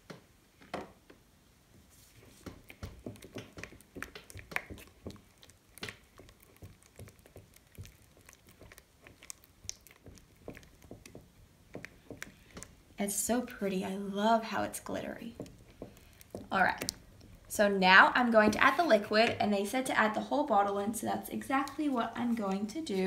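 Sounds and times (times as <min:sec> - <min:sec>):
sticky glue squishes: 0:02.0 - 0:13.7, 0:14.6 - 0:17.5.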